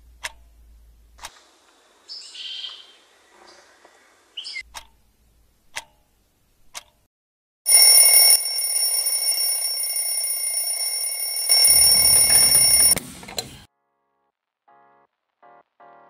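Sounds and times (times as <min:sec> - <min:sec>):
click: 0:06.7 - 0:07.0
alarm clock ringing: 0:07.7 - 0:13.0.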